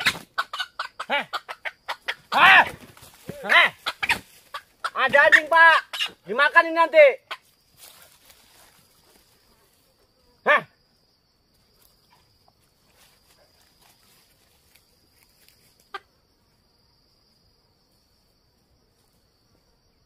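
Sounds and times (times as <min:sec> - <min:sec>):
animal call: 0:00.0 - 0:06.6
high insect drone: 0:00.0 - 0:20.0.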